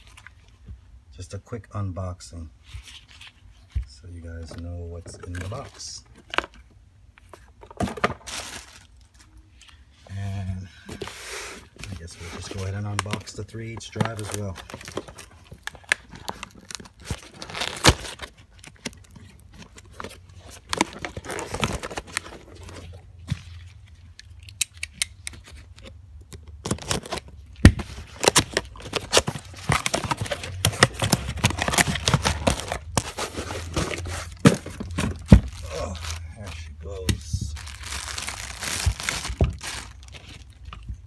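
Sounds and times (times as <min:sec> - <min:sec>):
plastic crinkling: 0:11.8 - 0:24.5, 0:25.2 - 0:40.9
cardboard tearing: 0:13.9 - 0:22.9, 0:26.6 - 0:36.7, 0:37.6 - 0:40.4.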